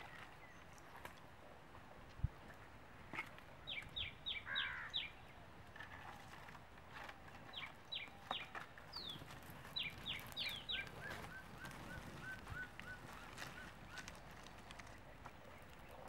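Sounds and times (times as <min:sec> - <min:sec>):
birds calling: 0:03.2 - 0:06.1, 0:07.0 - 0:16.0.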